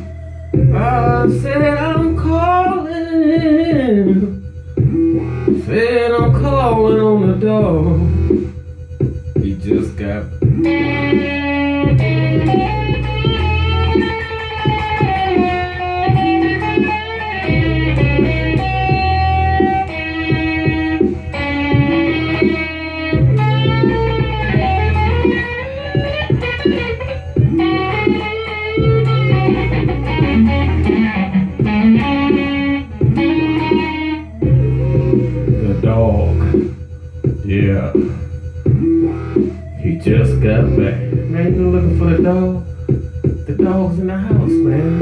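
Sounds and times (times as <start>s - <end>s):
electric guitar bending lead notes: 0.0s - 45.0s
low sustained guitar notes: 10.5s - 36.6s
low bass note: 28.8s - 43.6s.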